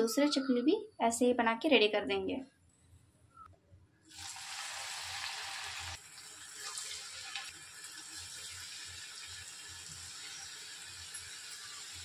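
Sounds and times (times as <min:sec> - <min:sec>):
oil sizzling and bubbling: 0:04.1 - 0:12.0.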